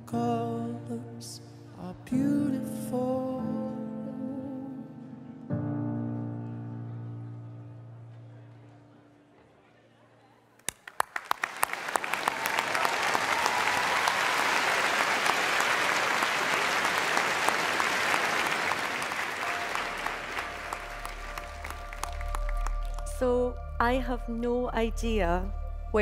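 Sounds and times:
music: 0:00.0 - 0:09.6, 0:18.8 - 0:26.0
audience applauding: 0:10.6 - 0:23.2.

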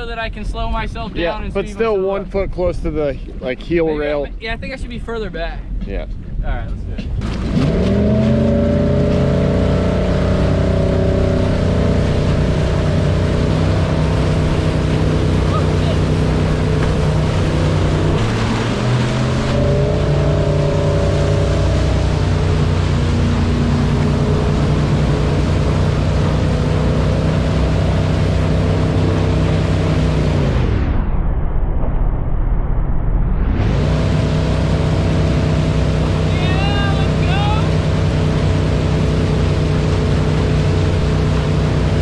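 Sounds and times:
wind: 0:00.0 - 0:42.0
churning water: 0:06.9 - 0:30.6, 0:33.7 - 0:42.0
boat engine under throttle: 0:06.9 - 0:30.9, 0:33.7 - 0:42.0.

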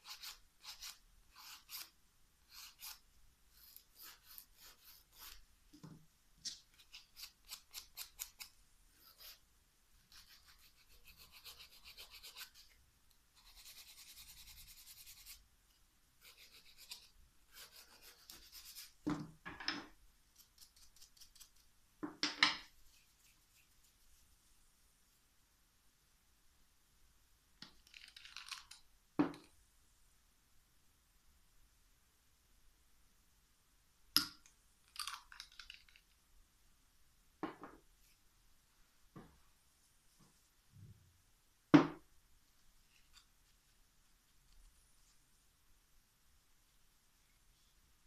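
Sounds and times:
nail file rasping on fingernail: 0:00.0 - 0:01.9, 0:02.5 - 0:03.0, 0:03.6 - 0:05.4, 0:06.7 - 0:09.4, 0:10.0 - 0:12.7, 0:13.4 - 0:15.4, 0:16.2 - 0:18.9.

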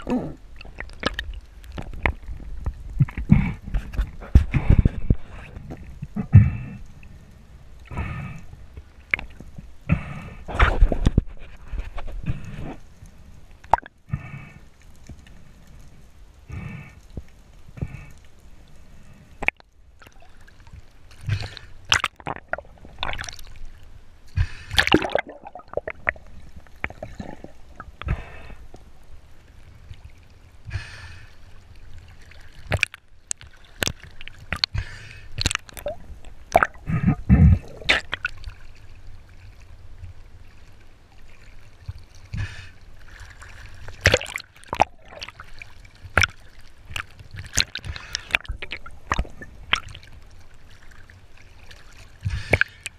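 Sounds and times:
gurgling water: 0:00.0 - 0:15.7, 0:19.0 - 0:52.9
underwater knocks and clicks: 0:00.6 - 0:06.4, 0:08.7 - 0:09.7, 0:10.5 - 0:12.4, 0:32.7 - 0:34.8, 0:35.4 - 0:38.4, 0:46.0 - 0:50.0.

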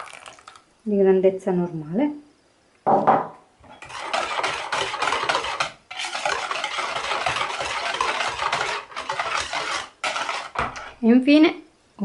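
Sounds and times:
whisk beating batter in bowl: 0:03.8 - 0:11.0.

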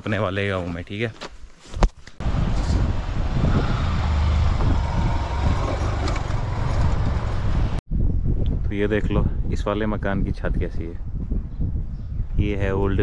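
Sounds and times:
motorcycle engine under load: 0:04.3 - 0:07.8.

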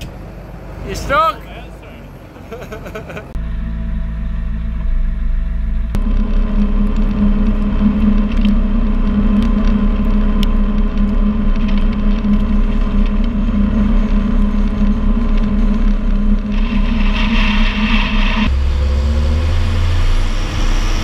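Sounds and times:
tractor diesel engine droning: 0:00.0 - 0:21.0
short steady hum: 0:03.2 - 0:18.8.

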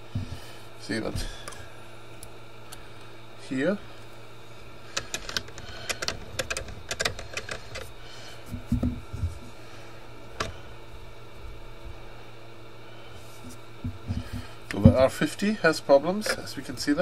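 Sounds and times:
steady low hum: 0:00.0 - 0:17.0
dull thumps: 0:00.1 - 0:00.5, 0:08.5 - 0:09.5.

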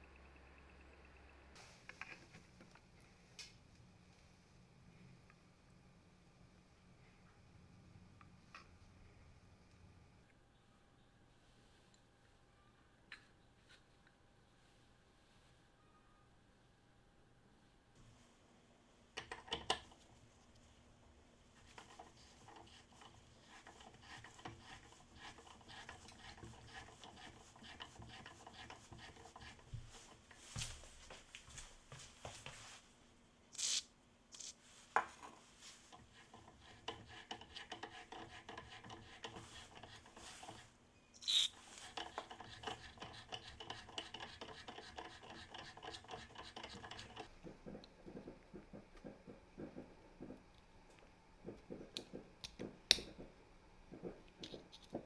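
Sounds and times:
metal rasping on metal: 0:21.6 - 0:30.3, 0:35.8 - 0:40.7, 0:41.3 - 0:47.4.

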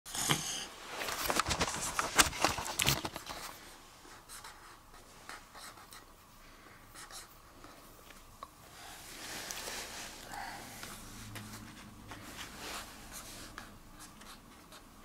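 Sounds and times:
marker scribbling on paper: 0:04.2 - 0:06.1, 0:06.9 - 0:07.4.

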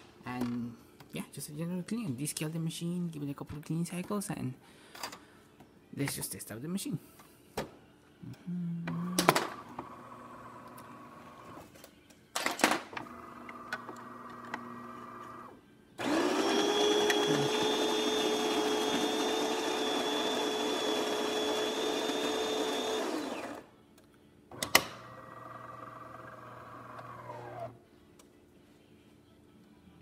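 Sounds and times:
gear motor hum: 0:13.2 - 0:23.6
coffee grinder running: 0:13.6 - 0:23.6, 0:25.1 - 0:27.7.

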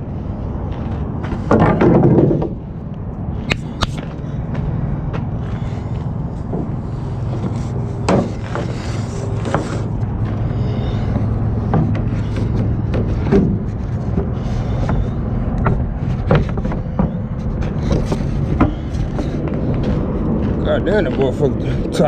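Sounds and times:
steady low hum: 0:00.0 - 0:22.0
wooden boards knocking and scraping: 0:01.3 - 0:02.6, 0:06.5 - 0:09.9, 0:11.2 - 0:20.1.

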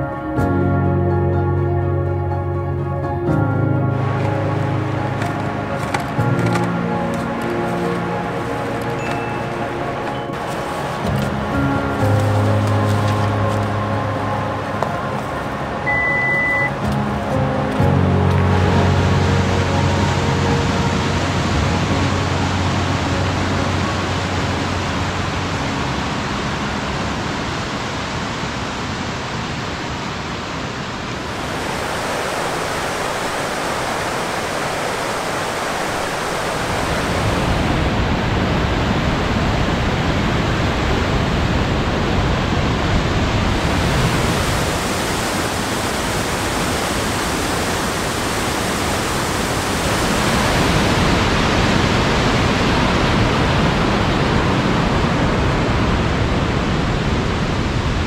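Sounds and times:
creek rushing over rocks: 0:03.9 - 0:25.5, 0:26.8 - 0:57.8.

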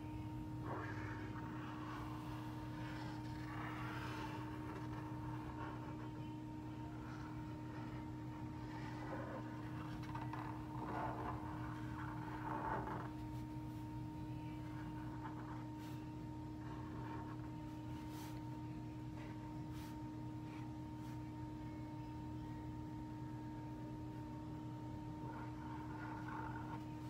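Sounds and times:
steady tonal hum: 0:00.0 - 0:27.0
marker scratching on paper: 0:00.6 - 0:13.8.

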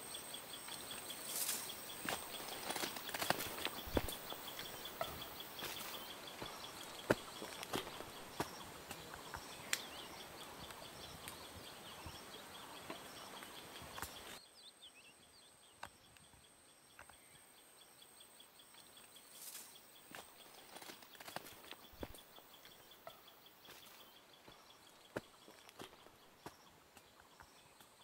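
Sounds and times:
background hiss: 0:00.0 - 0:28.0
high repeated chirping: 0:01.3 - 0:11.2.

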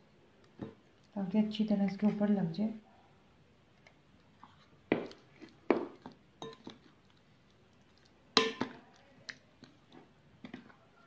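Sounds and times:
spoon knocking glass bowl: 0:08.4 - 0:08.8.

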